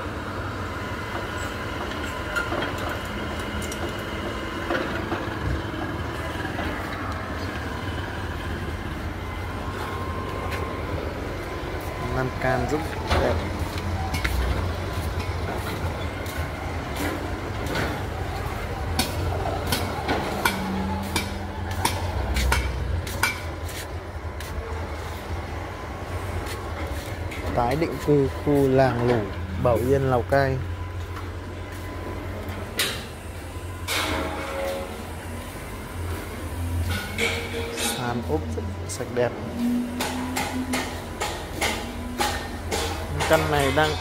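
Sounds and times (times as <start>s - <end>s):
low engine rumble: 0.0s - 44.0s
hammer blows with metallic ring: 19.0s - 23.4s, 39.6s - 44.0s.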